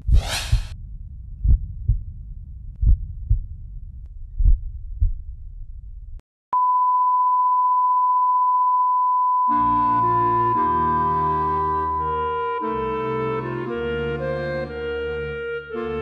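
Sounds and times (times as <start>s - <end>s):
heartbeat thumps: 0.0s - 6.2s
long steady flatline beep: 6.6s - 13.5s
music: 9.5s - 16.0s.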